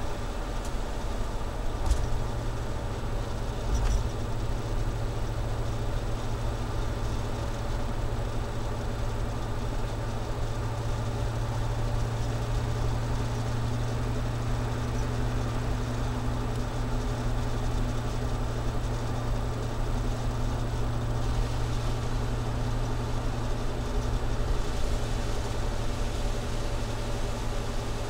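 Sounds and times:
engine exhaust drone: 0.0s - 28.0s
hiss: 21.2s - 22.4s.

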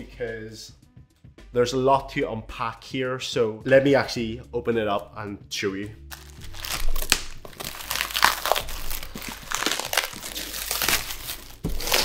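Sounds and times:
plastic wrapping crinkling: 6.1s - 12.0s.

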